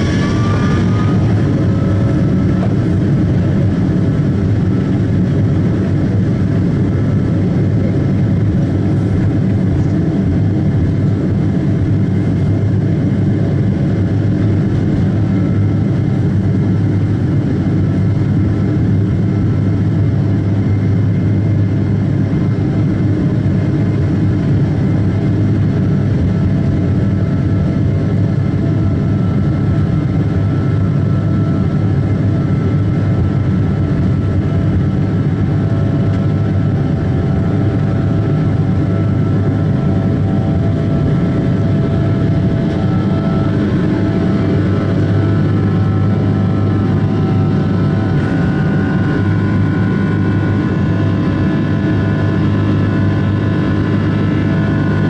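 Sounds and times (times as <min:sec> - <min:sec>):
faint whining tones: 0:00.0 - 0:05.2
jet engines in airliner cabin: 0:00.0 - 0:55.0.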